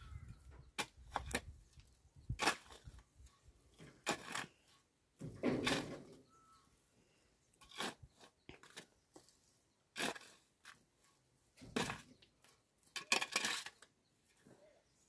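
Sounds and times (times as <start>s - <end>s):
spade scraping stony soil: 0.4s - 6.4s, 7.5s - 12.2s, 12.8s - 14.0s.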